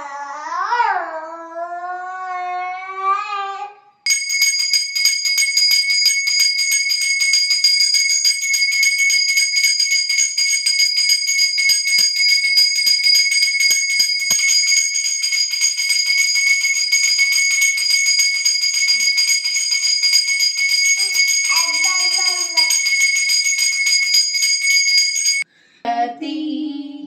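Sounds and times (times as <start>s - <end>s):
brass hand bell ringing rapidly: 4.1s - 25.4s.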